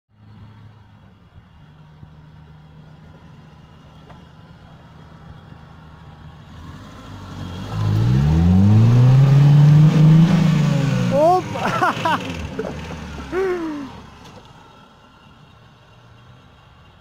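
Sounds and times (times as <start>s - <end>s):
car engine revving: 6.4s - 14.6s.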